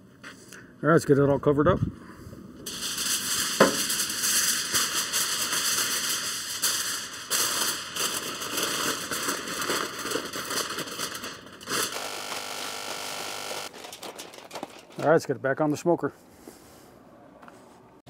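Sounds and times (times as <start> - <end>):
aluminum foil crinkling: 2.7 - 13.0, 13.6 - 15.3.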